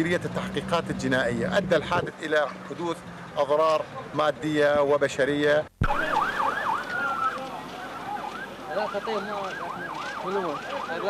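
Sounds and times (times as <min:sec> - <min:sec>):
emergency sirens yelping: 0:05.8 - 0:11.0.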